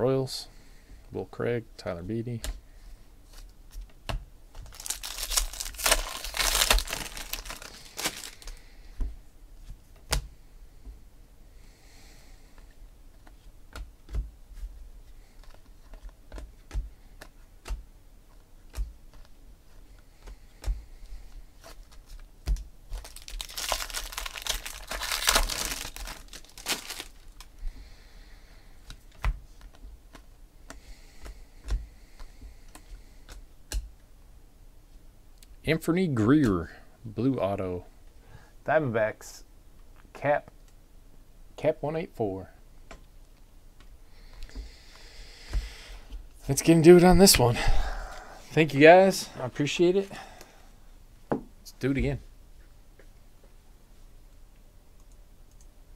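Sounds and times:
foil wrapper tearing and crinkling: 4.6 - 8.6, 22.9 - 27.5.

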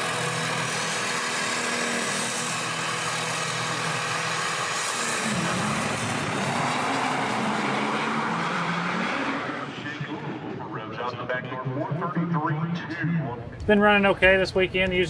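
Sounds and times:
diesel dragster engine: 0.0 - 15.0.

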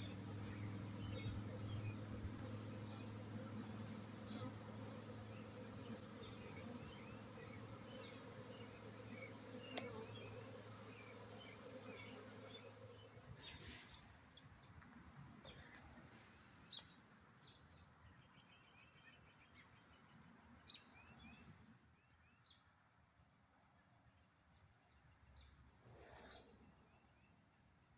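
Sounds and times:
honeybees buzzing: 0.0 - 13.2
small birds chirping: 0.0 - 14.0.

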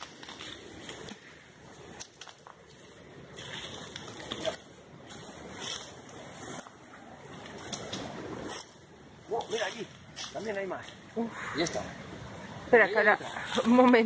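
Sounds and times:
footsteps rustling through dry leaves: 0.0 - 11.1
twigs crackling: 0.0 - 14.0.

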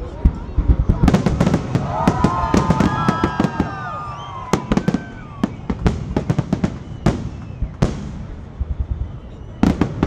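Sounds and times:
fireworks bangs and crackles: 0.0 - 10.0
sliding whistling tones: 4.0 - 10.0.

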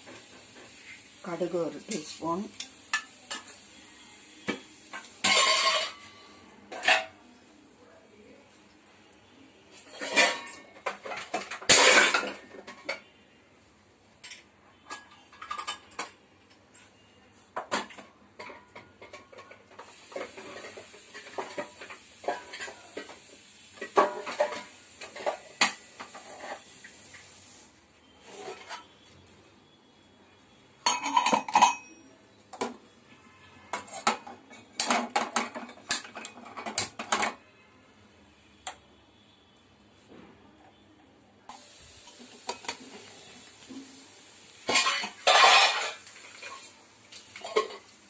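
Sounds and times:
steady hiss: 0.0 - 5.0, 41.5 - 48.0
spoons and vessels clinking: 4.4 - 7.2, 8.6 - 13.1, 14.2 - 17.0, 18.4 - 23.2, 23.8 - 26.6, 30.8 - 32.1, 44.6 - 48.0.

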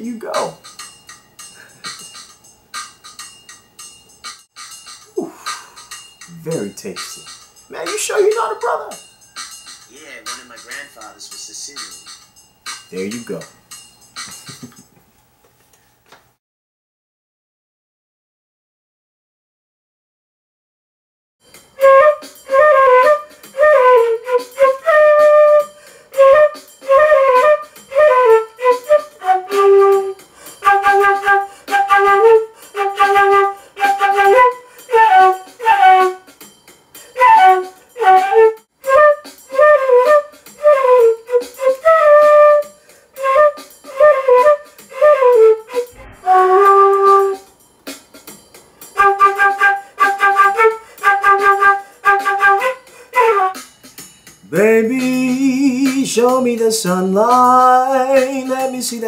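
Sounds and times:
flute playing jazz melody: 21.8 - 36.3, 37.1 - 47.5, 49.0 - 53.7.

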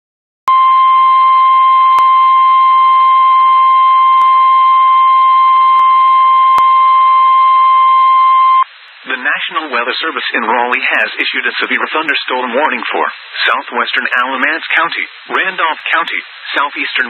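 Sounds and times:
loud piercing alarm beep: 0.5 - 8.7
faint radio hiss: 5.3 - 17.0.

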